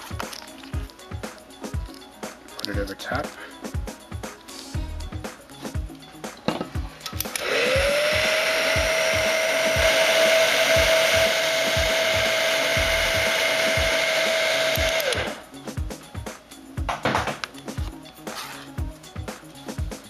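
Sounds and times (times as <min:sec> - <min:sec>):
heat gun fan whining: 0:07.0 - 0:15.5.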